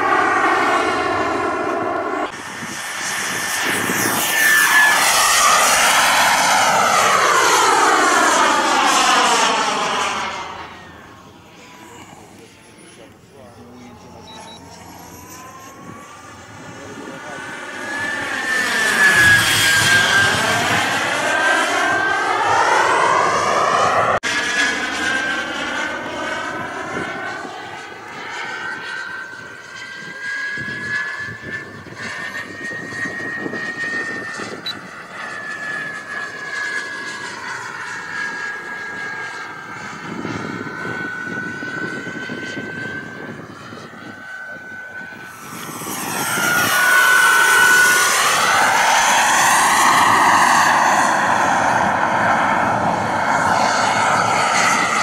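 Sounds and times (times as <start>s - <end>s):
model jet turbine whine: 0.0s - 55.0s.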